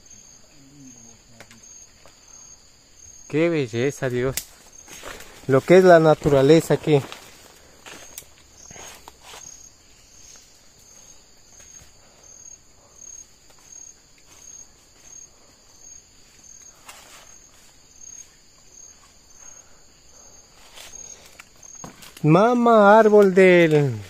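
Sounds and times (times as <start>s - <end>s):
insects buzzing: 0.0s - 24.0s
pulsing insect chirp: 0.0s - 24.0s
steps through undergrowth: 4.2s - 12.4s, 13.4s - 19.3s, 20.4s - 22.4s.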